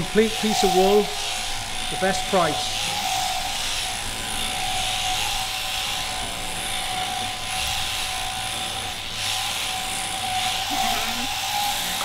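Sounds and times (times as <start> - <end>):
shearing handpiece buzzing: 0.0 - 12.0.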